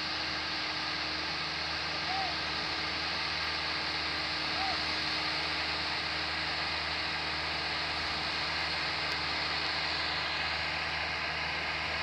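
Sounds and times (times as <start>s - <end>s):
heavy diesel engine running: 0.0s - 12.0s.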